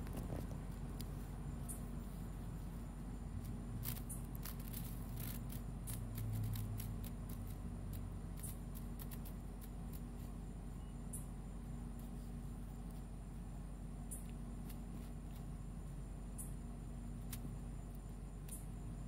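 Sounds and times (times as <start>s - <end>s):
dry leaves rustling: 0.0s - 10.7s
steady low hum: 0.0s - 19.0s.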